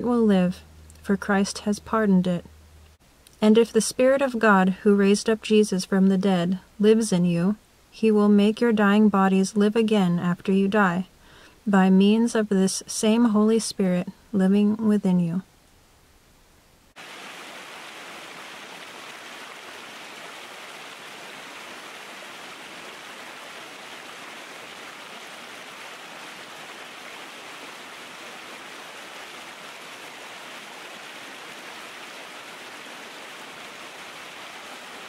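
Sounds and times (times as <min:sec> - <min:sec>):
water rushing over rocks: 0:17.0 - 0:35.0.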